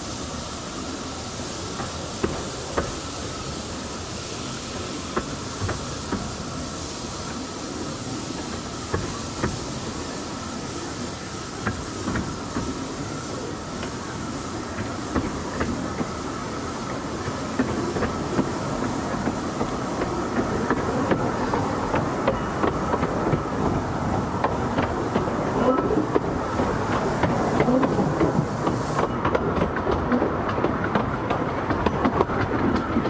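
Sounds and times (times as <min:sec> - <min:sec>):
train rumbling: 0:00.0 - 0:33.0
wheels clicking over rail joints: 0:16.9 - 0:33.0.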